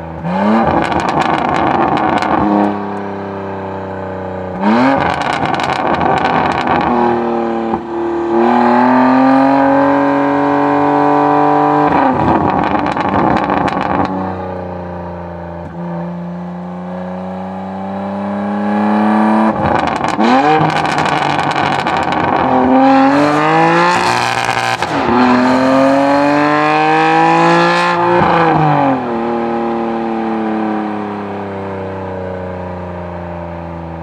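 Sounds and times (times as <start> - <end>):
car engine revving: 0.0 - 31.4
exhaust crackling: 0.2 - 3.1, 3.9 - 15.8, 18.8 - 27.3.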